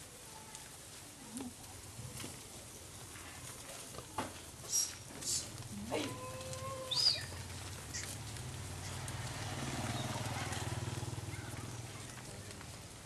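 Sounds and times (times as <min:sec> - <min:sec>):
bird chirp: 0:06.9 - 0:08.2
low engine hum: 0:07.1 - 0:13.0.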